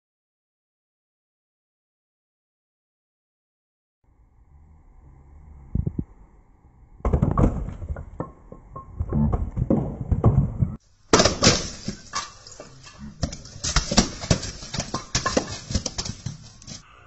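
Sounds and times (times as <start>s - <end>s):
ice blocks knocking and clattering: 7.1s - 16.8s.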